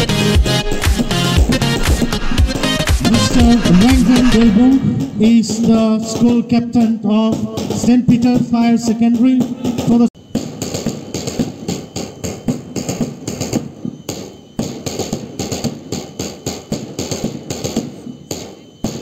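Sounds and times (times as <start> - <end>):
marching drums beating: 0.0 - 6.3.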